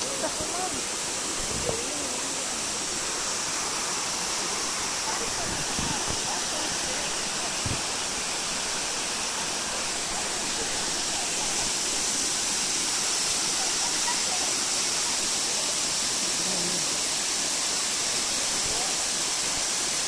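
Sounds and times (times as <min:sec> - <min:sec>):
waterfall rushing over rocks: 0:00.0 - 0:20.0.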